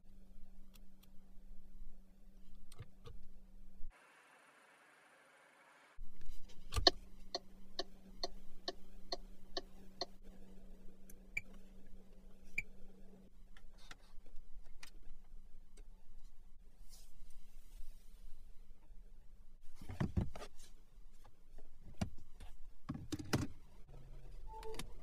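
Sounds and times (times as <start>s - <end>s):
low steady hum: 5.7s - 19.8s
turn-signal indicator ticking: 6.8s - 10.2s.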